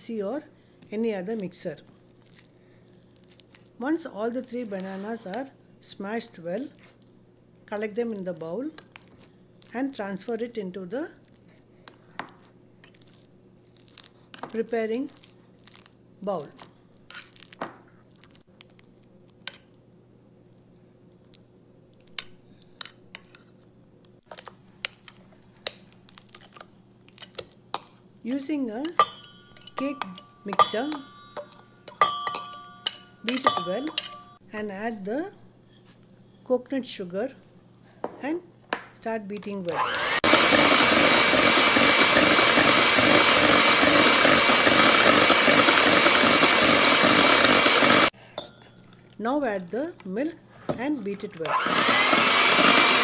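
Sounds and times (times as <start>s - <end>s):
electric hand mixer whining: 39.7s - 48.1s, 51.4s - 53.0s.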